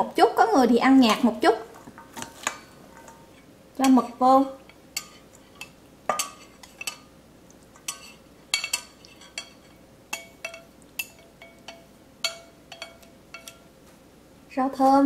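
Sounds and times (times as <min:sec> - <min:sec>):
utensils clinking on metal bowl: 0:01.1 - 0:04.0, 0:05.0 - 0:07.1, 0:07.7 - 0:13.7.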